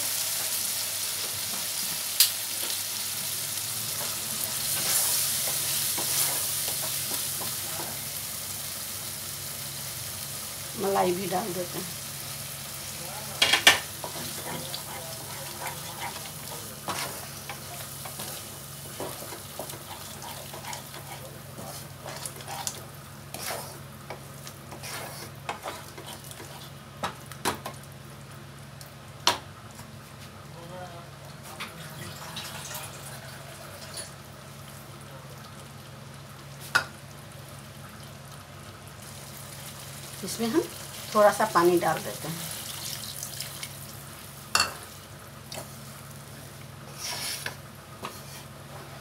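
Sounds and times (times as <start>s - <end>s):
masala sizzling in pan: 0.0s - 30.5s, 31.1s - 49.0s
spatula stirring and scraping: 4.0s - 8.0s, 14.0s - 26.8s, 45.5s - 49.0s.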